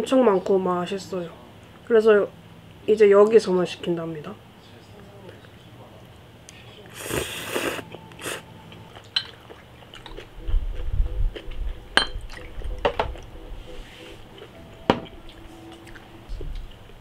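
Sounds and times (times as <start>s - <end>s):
glass clinking: 8.9s - 9.4s, 12.0s - 13.0s.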